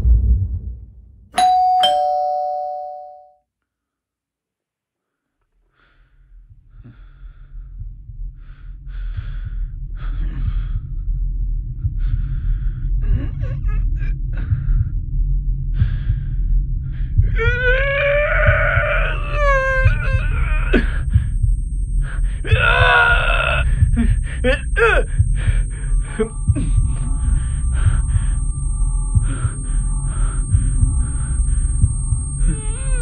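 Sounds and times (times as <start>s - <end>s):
bright bell-like chime: 1.4s - 3.4s
low rumbling drone: 6.1s - 33.0s
wailing cry: 17.4s - 21.4s, 22.0s - 28.6s, 29.2s - 33.0s.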